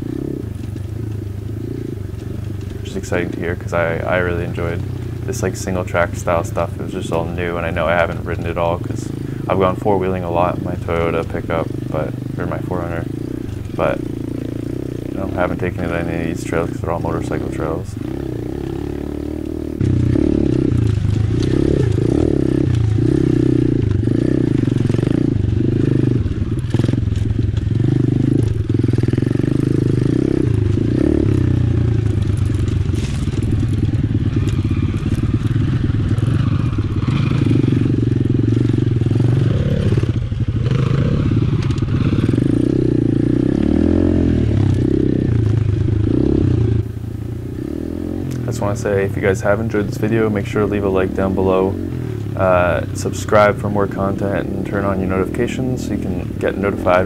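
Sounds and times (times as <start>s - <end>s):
motorcycle engine revving: 0.0s - 57.0s
bike knocks and rattles: 17.2s - 46.7s.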